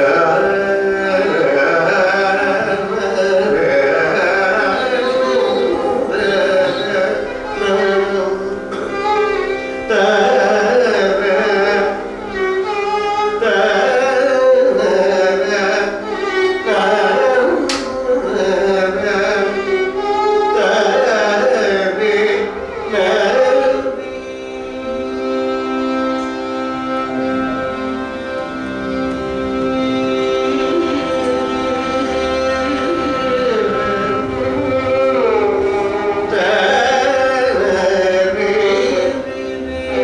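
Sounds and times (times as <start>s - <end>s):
man singing: 0.0s - 12.2s, 12.8s - 27.2s, 29.7s - 40.0s
violin: 0.0s - 40.0s
sharp click: 17.7s - 18.0s.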